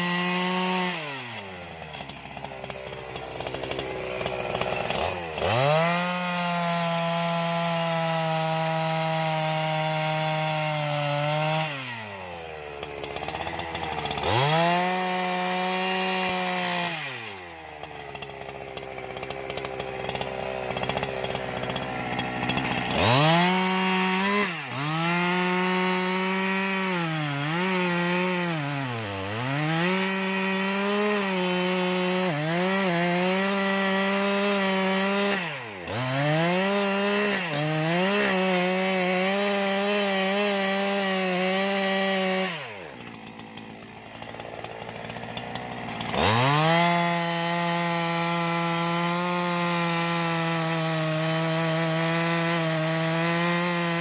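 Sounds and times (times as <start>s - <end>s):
chainsaw cutting wood: 0.0s - 54.0s.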